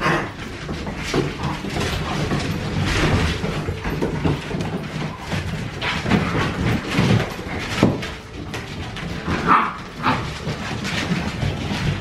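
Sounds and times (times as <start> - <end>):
paws clicking on hard floor: 0.0 - 12.0
dog yips and play noises: 9.2 - 10.4.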